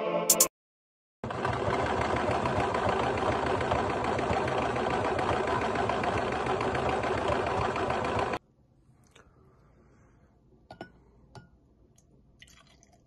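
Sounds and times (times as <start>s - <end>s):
sewing machine stitching: 1.2s - 8.4s.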